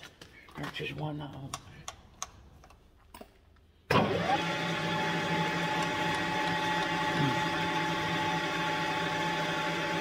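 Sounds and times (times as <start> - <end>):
milling machine spindle whining: 4.0 - 10.0.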